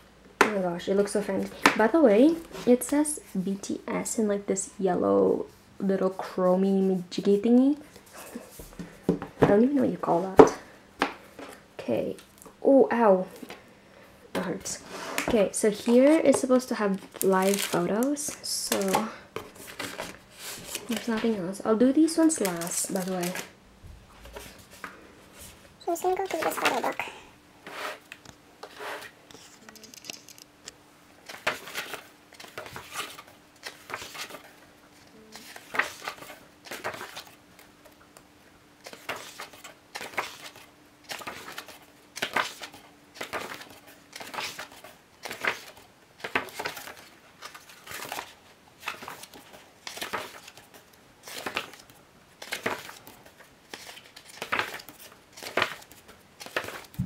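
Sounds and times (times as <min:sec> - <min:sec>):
book pages turning: 0:15.2 - 0:21.4, 0:24.2 - 0:27.0, 0:27.6 - 0:30.5, 0:31.2 - 0:38.0, 0:38.8 - 0:57.0.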